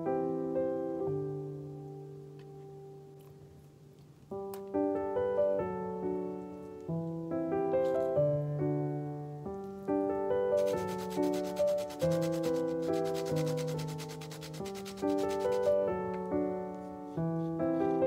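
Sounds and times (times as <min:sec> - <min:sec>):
gentle piano music: 0:00.0 - 0:18.0
grater rasping: 0:10.6 - 0:15.8.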